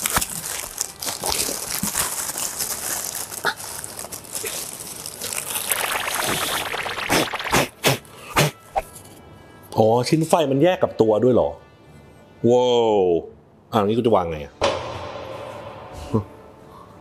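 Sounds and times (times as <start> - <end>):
tissue paper rustling: 0.0 - 5.7.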